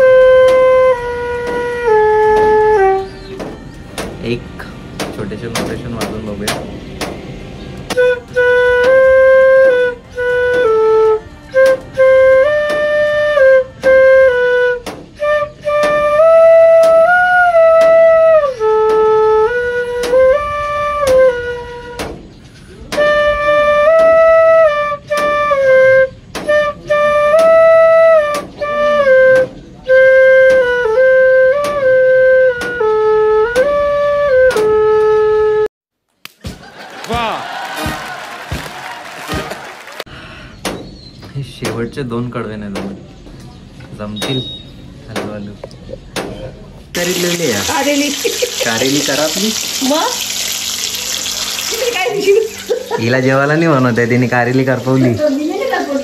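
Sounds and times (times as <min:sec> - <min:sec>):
bamboo flute melody: 0:00.0 - 0:06.6, 0:07.8 - 0:35.7.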